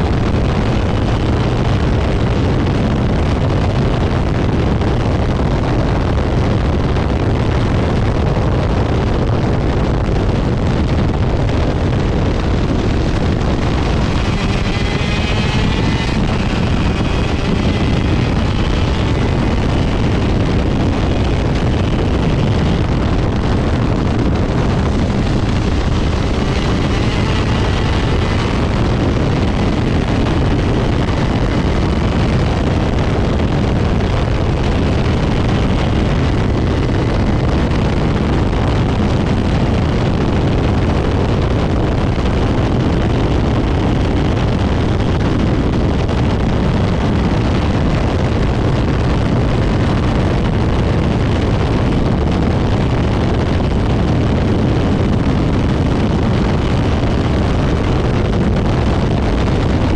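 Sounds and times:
wind rushing over microphone: 0:00.0 - 0:59.9
kart engine at high revs: 0:09.6 - 0:53.5.

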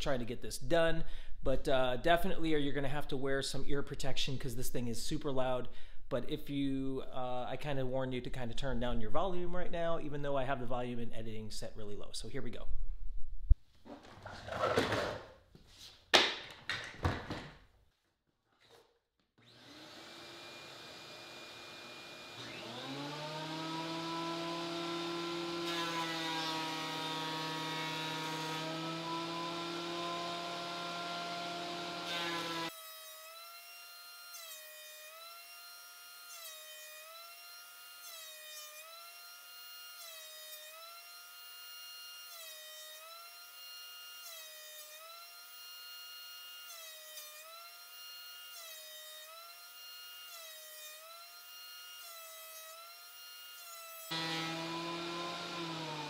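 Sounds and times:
planer motor whine: 0:19.4 - 0:32.7, 0:54.1 - 0:56.0.

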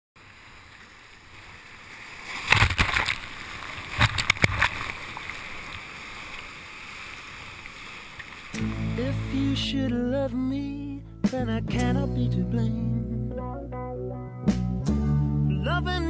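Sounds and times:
steady rush of water: 0:00.2 - 0:09.3.

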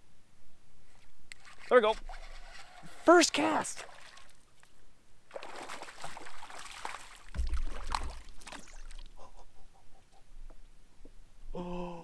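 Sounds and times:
fish splashing in water: 0:05.3 - 0:09.1
low thump: 0:07.3 - 0:07.7.

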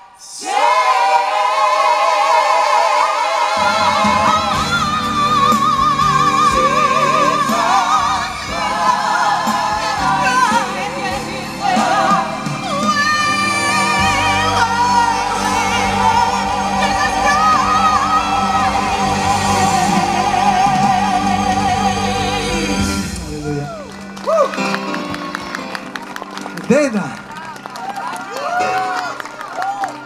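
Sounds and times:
gospel choir singing: 0:00.0 - 0:23.8.

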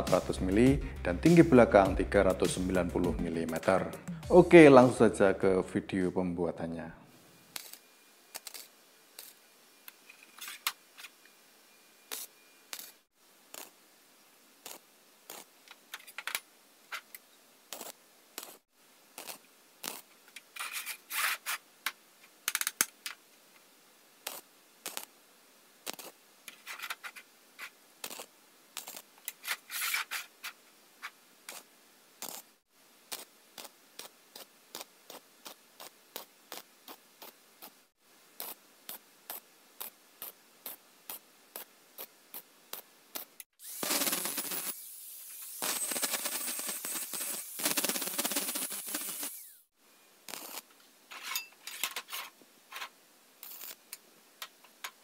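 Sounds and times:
rasping bursts: 0:43.2 - 0:49.6
light metallic taps and scrapes: 0:51.1 - 0:55.0.

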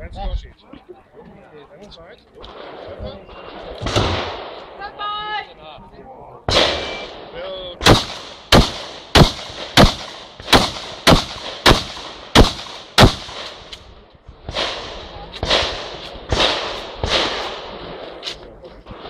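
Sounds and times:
shotgun shots: 0:02.4 - 0:04.8, 0:06.5 - 0:13.8, 0:14.5 - 0:18.2.

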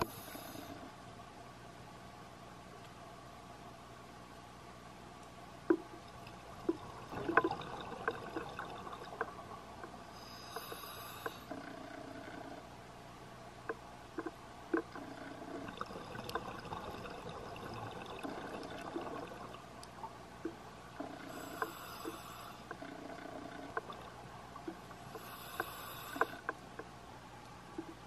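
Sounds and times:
scuba regulator breathing: 0:00.0 - 0:00.9, 0:10.1 - 0:11.6, 0:21.2 - 0:22.8, 0:25.1 - 0:26.5
steady hiss: 0:00.0 - 0:01.1, 0:05.4 - 0:14.7, 0:15.4 - 0:27.5
underwater clicks and crackles: 0:05.2 - 0:12.7, 0:13.6 - 0:28.0.

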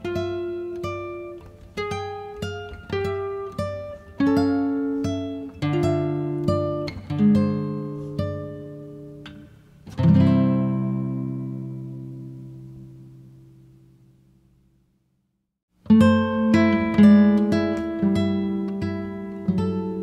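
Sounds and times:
guitar plucked notes: 0:00.0 - 0:14.2, 0:15.8 - 0:20.0.

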